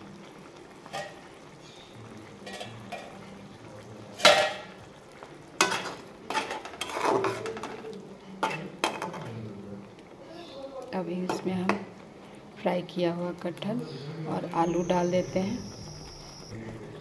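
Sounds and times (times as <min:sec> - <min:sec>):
metal spatula scraping a pan: 0:02.4 - 0:03.2, 0:05.6 - 0:07.8, 0:08.4 - 0:09.3.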